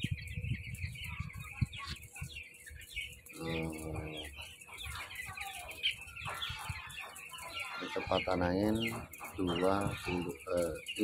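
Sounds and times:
chicks peeping: 0.0 - 11.0
drawn-out chick call: 0.0 - 11.0.

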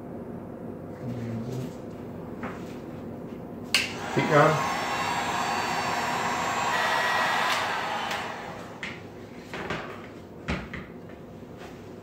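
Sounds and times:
heat gun blowing: 3.8 - 9.2.

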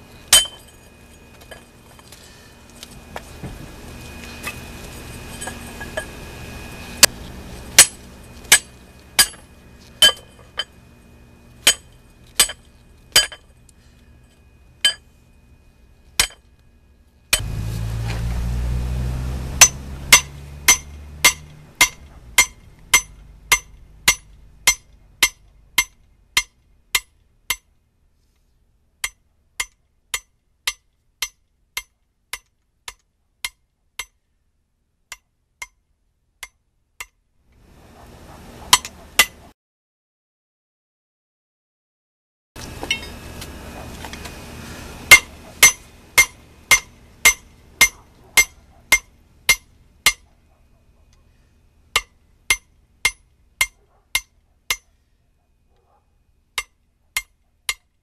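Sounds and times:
hammer striking metal on anvil: 0.3 - 0.8, 7.8 - 10.7, 11.6 - 13.5, 16.2 - 16.4, 19.6 - 27.7, 45.1 - 50.2, 52.0 - 54.9.

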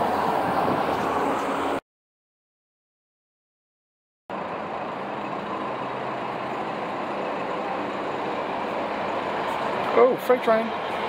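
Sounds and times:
diesel train engine rumble: 0.0 - 1.8, 4.3 - 11.0.

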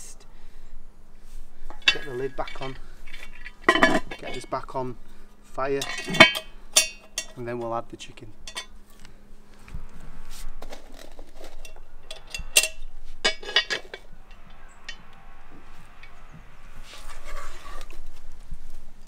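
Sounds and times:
metal scraping: 1.2 - 4.8, 5.5 - 7.7, 8.4 - 8.9, 10.0 - 19.0
metal lid clanking: 1.7 - 4.6, 5.7 - 7.4, 8.4 - 8.7, 11.4 - 15.0.

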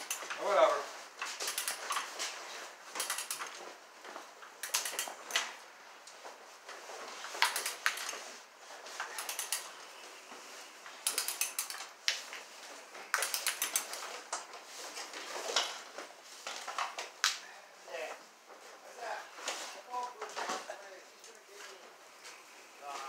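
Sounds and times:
cable clicking and rattling: 0.0 - 0.4, 1.2 - 2.2, 2.9 - 3.7, 4.5 - 5.5, 7.4 - 8.3, 9.0 - 9.8, 11.0 - 11.9, 13.0 - 14.5.

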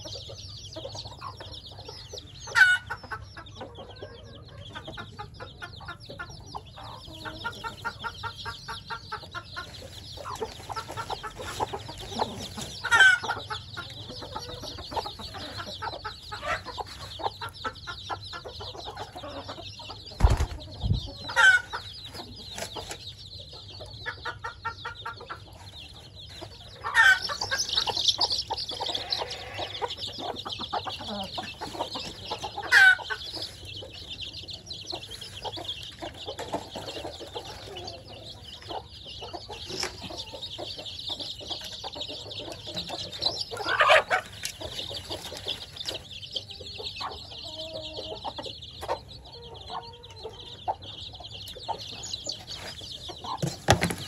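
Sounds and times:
chicks peeping: 0.0 - 54.0
dull low thumps: 20.2 - 21.2.

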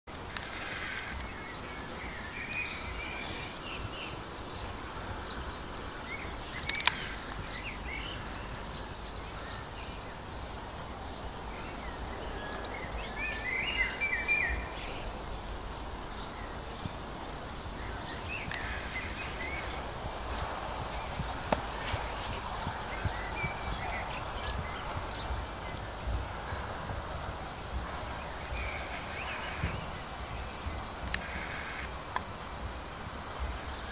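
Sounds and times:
small birds chirping: 0.1 - 33.9
steady low rumble: 0.1 - 33.9
sharp click: 6.6 - 7.1.

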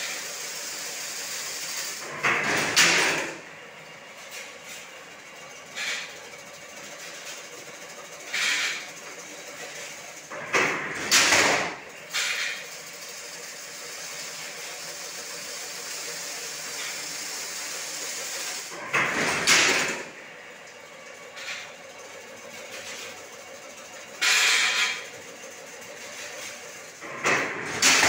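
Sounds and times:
weaving machine humming: 0.0 - 28.0
loud noisy machine surge: 5.7 - 20.2, 24.1 - 28.0.

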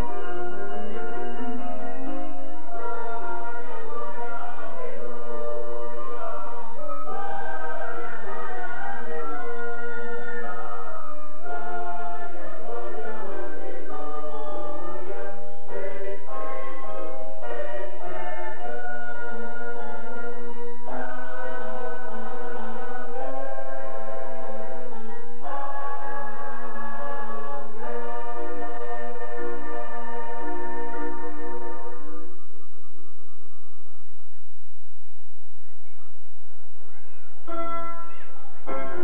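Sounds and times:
mixed choir singing in harmony: 0.0 - 32.3.

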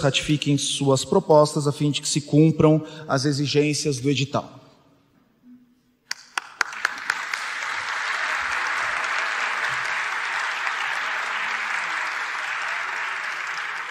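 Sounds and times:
audience applause: 6.1 - 13.9.

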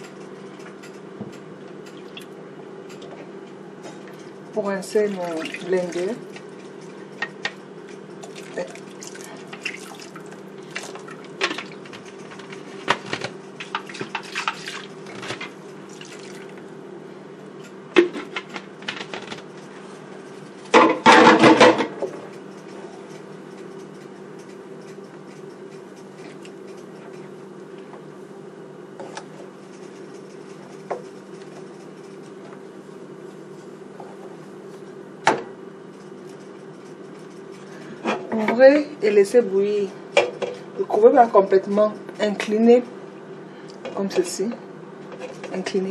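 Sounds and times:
steady low hum: 0.0 - 45.9
clatter and splashing: 8.2 - 16.5.

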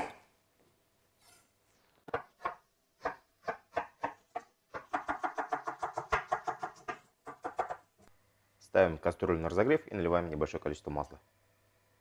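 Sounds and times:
knife chopping on wooden board: 2.1 - 7.8.

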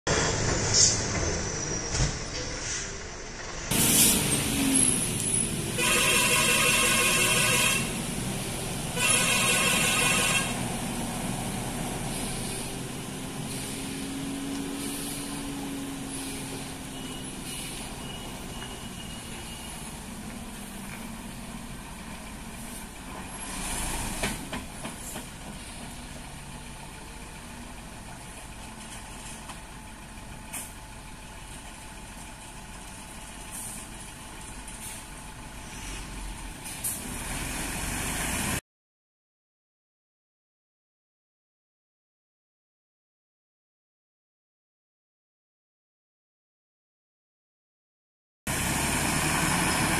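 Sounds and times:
diesel lorry engine under load: 0.1 - 38.6, 48.5 - 49.9
air-brake hisses: 3.7 - 4.4, 12.0 - 16.7, 17.3 - 18.2
lorry horn: 5.7 - 8.0, 8.9 - 10.7.

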